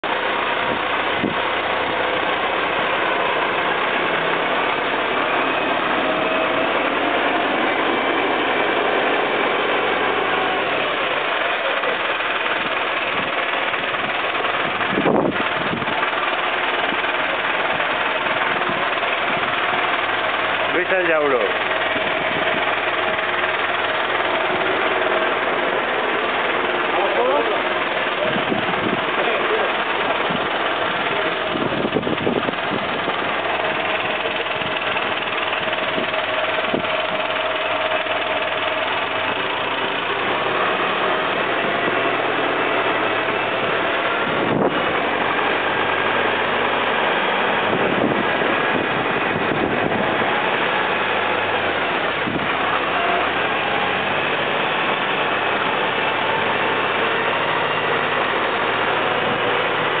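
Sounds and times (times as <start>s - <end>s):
tractor diesel engine running: 0.0s - 60.0s.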